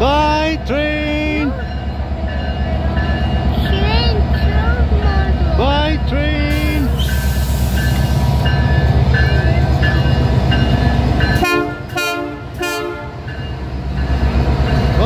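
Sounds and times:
diesel locomotives rumbling by: 0.0s - 15.0s
train horn blasts: 11.4s - 13.3s.

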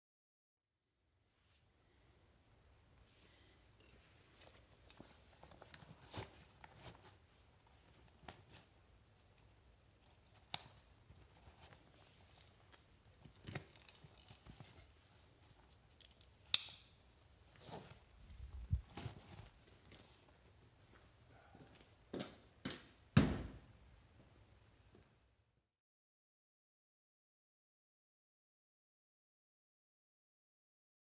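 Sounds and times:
fabric rustling: 3.9s - 8.9s, 17.2s - 20.5s
plastic buckle snapping shut: 16.5s - 16.9s.

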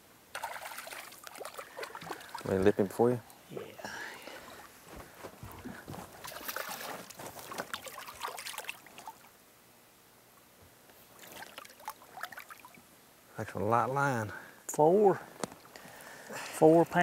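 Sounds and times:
water splashing: 0.3s - 3.3s, 6.2s - 9.3s, 11.2s - 12.8s.

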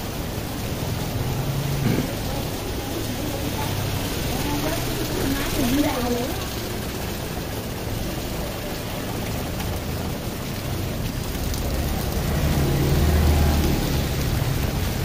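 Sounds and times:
steady rain: 0.0s - 15.0s
vehicle engine passing: 11.2s - 15.0s.

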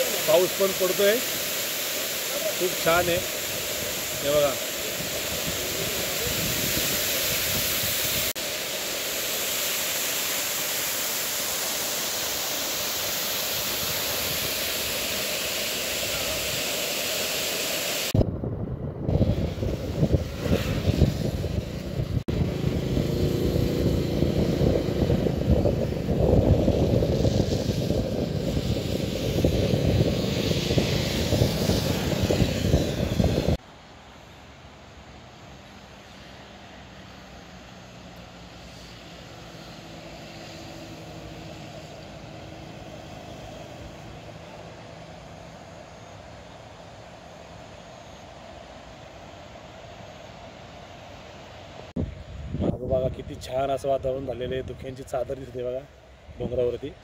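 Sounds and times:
steady hiss: 0.0s - 18.2s, 19.2s - 57.0s
waterfall rushing: 0.0s - 18.2s
gusty wind buffeting: 2.6s - 8.4s, 12.4s - 16.8s, 18.1s - 33.6s, 38.6s - 57.0s
moving vehicle running noise: 18.1s - 33.6s, 36.2s - 46.1s.

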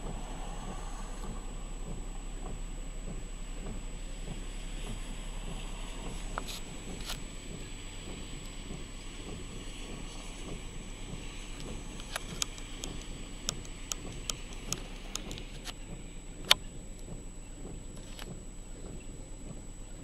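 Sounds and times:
sharp ticks: 0.0s - 15.8s
steady rain: 0.0s - 20.0s
wind buffeting microphone: 0.0s - 20.0s.

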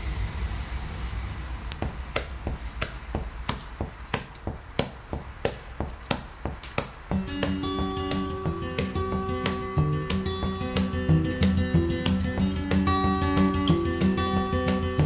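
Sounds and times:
low rumble: 0.0s - 2.6s
sharp rhythmic ticks: 1.7s - 15.0s
guitar notes: 7.1s - 15.0s.

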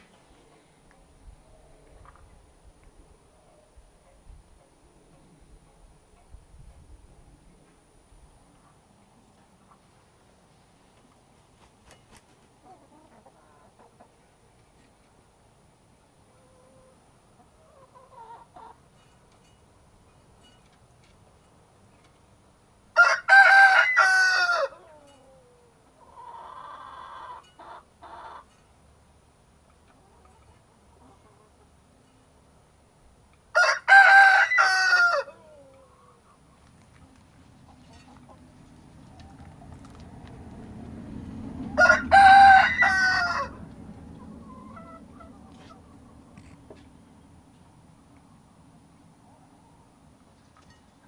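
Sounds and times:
hen clucking: 17.4s - 18.8s, 26.0s - 28.5s
rooster crowing: 23.0s - 24.8s, 33.6s - 35.4s, 41.8s - 43.6s.

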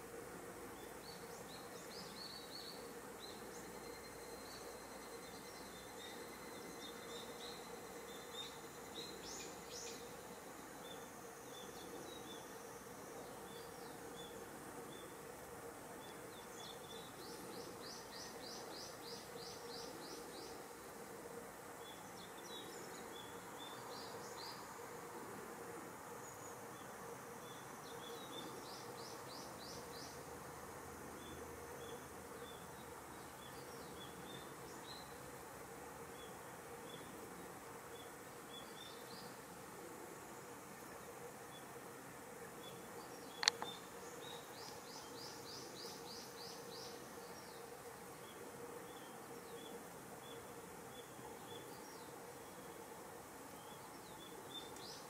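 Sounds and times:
small birds chirping: 42.6s - 52.9s.

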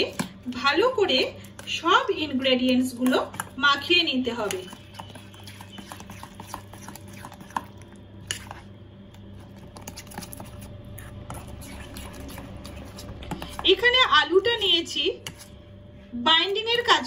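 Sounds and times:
metal spoon scraping steel bowl: 3.3s - 8.6s, 9.5s - 14.0s.

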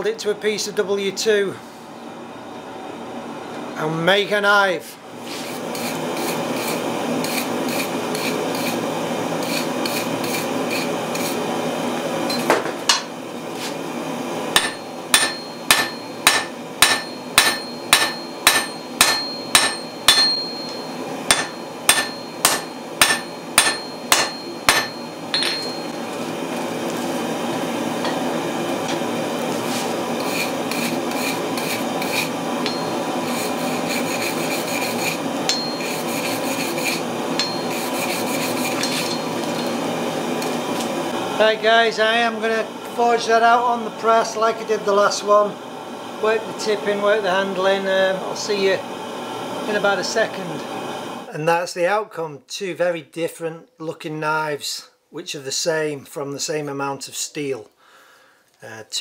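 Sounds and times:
wire brush scrubbing steel: 5.2s - 8.8s, 9.4s - 11.5s, 29.6s - 39.8s
hammer ringing on anvil: 14.6s - 26.0s, 32.6s - 33.1s, 35.5s - 36.0s, 37.4s - 37.8s, 38.8s - 39.8s.

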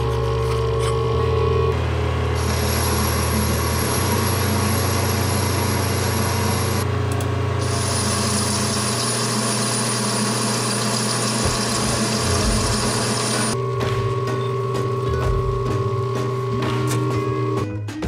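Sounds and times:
machine hum: 0.0s - 17.7s
lathe machining hiss: 2.4s - 6.8s, 7.6s - 13.6s.

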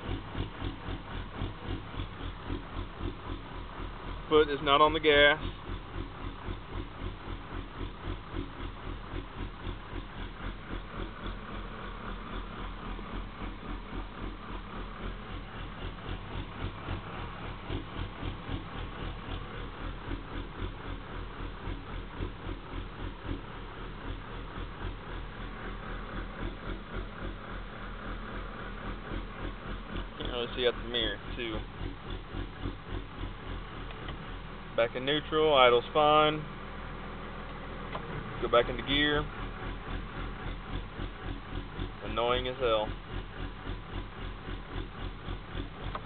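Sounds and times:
truck engine rough idle throbbing: 0.0s - 46.0s
rattle: 37.4s - 46.0s.

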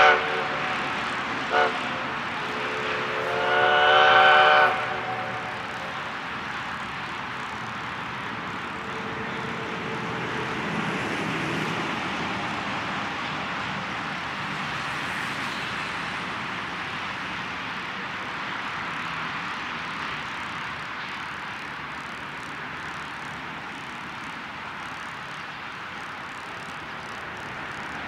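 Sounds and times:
steam locomotive whistle: 0.0s - 6.2s, 8.7s - 10.5s
distant steam train rushing: 0.0s - 28.0s.

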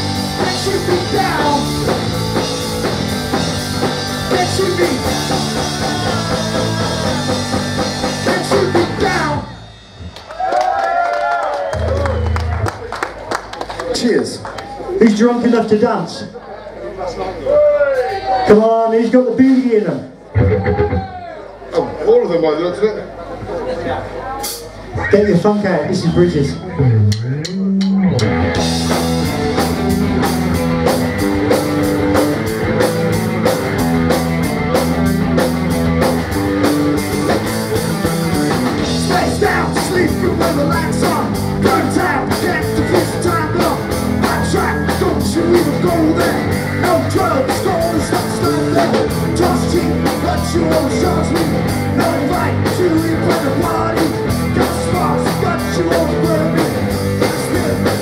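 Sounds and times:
man singing: 0.0s - 2.2s, 3.8s - 9.6s, 38.6s - 58.0s
rock band playing: 0.0s - 15.9s, 19.2s - 21.6s, 24.4s - 58.0s.

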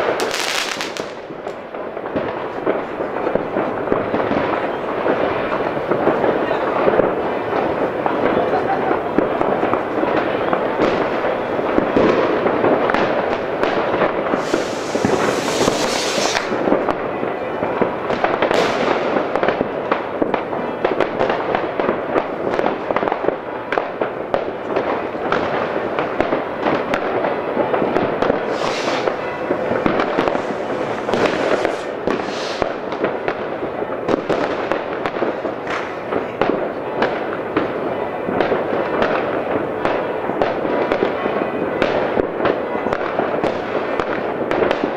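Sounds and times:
fireworks crackling and banging: 0.0s - 44.9s
rockets hissing: 0.2s - 1.3s, 14.3s - 16.7s, 28.4s - 32.9s.

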